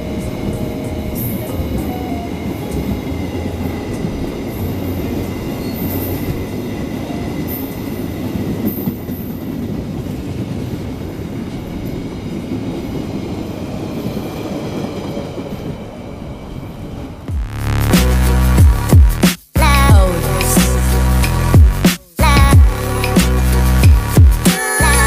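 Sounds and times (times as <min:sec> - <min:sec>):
high wheel squeals: 0:00.0 - 0:09.4
train wheels rumbling on rails: 0:00.0 - 0:25.0.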